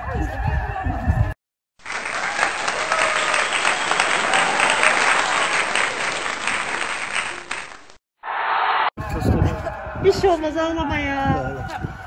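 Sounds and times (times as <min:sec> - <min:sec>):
crowd applauding: 0:01.8 - 0:08.0.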